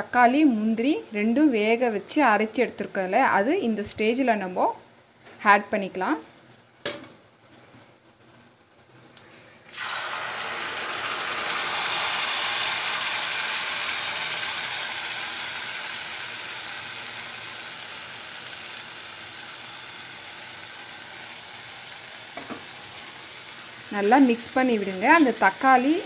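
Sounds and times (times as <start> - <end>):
paste sizzling in hot oil: 9.7 - 26.0.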